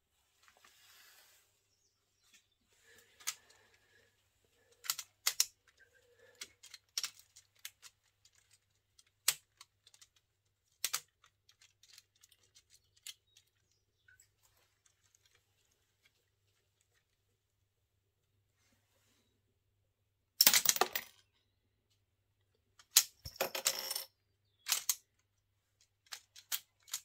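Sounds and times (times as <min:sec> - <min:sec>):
plastic parts clicking: 0:04.7 - 0:13.8, 0:24.6 - 0:25.2, 0:25.8 - 0:27.0.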